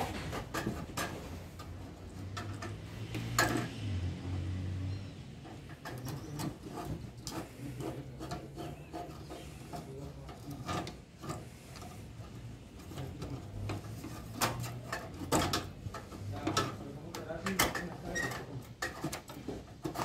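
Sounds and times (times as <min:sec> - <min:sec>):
screwdriver scraping and clicking: 0:00.0 - 0:03.8, 0:05.4 - 0:20.0
knocks of parts being handled: 0:00.0 - 0:03.9, 0:12.8 - 0:20.0.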